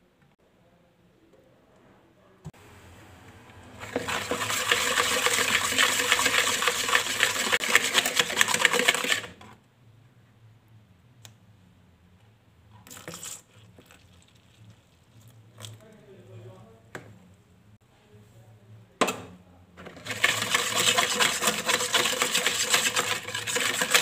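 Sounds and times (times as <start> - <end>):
whisk rattling in plastic bowl: 3.8 - 9.5, 19.8 - 24.0.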